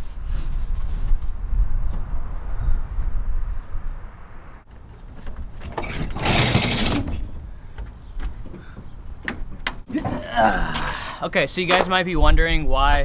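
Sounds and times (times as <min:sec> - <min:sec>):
window frames clicking and knocking: 0:04.7 - 0:10.2.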